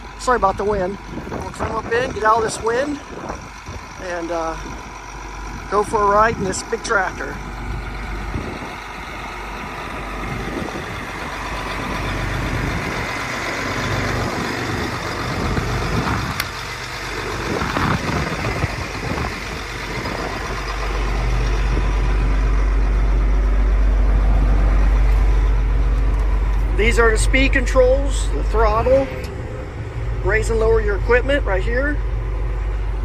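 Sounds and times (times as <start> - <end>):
diesel engine idling: 0.0 - 33.0
wind on microphone: 1.1 - 3.9, 8.1 - 8.8, 10.2 - 11.3, 15.3 - 16.4, 17.3 - 20.7.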